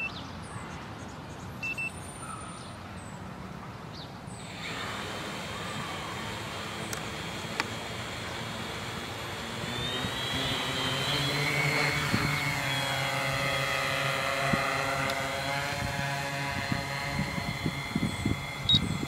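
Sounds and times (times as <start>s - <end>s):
drone motors whining: 4.3s - 19.0s.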